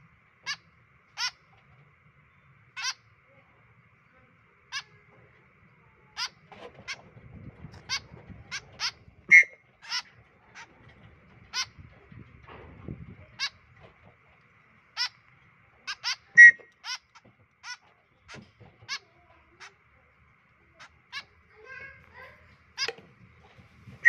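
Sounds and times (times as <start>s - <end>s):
young birds begging calls: 0.3s - 1.6s, 2.6s - 3.1s, 6.2s - 12.1s, 13.2s - 14.2s, 14.8s - 19.9s, 20.7s - 23.0s.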